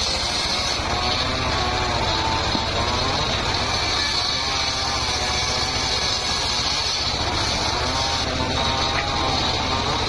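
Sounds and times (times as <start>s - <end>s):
circular saw ripping wood: 0.0s - 10.0s.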